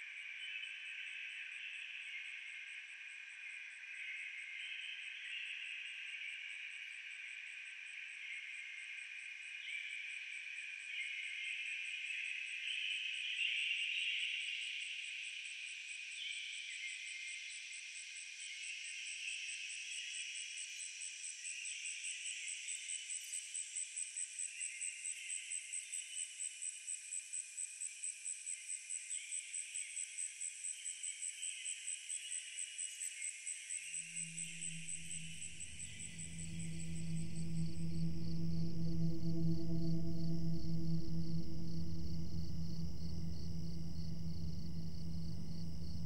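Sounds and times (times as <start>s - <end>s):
cricket trill: 34.0s - 46.0s.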